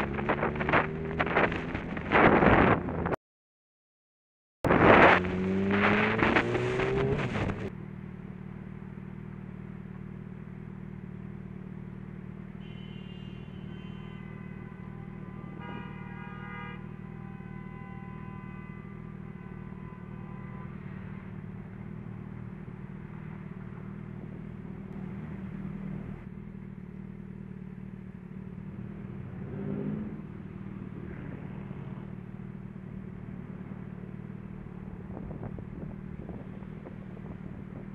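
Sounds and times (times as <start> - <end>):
motorcycle engine: 4.7 - 13.9, 20.8 - 37.9.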